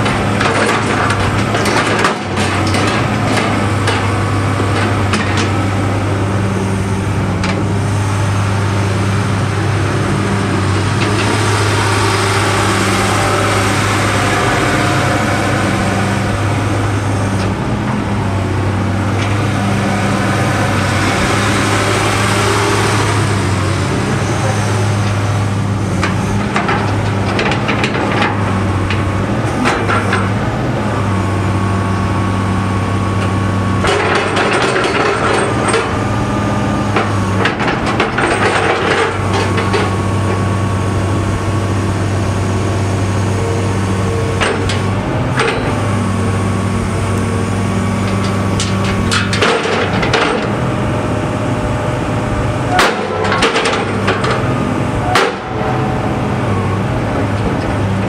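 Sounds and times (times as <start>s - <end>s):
diesel engine humming: 0.0s - 58.0s
metallic clanks and knocks: 48.0s - 50.6s, 52.7s - 54.4s, 55.1s - 55.5s.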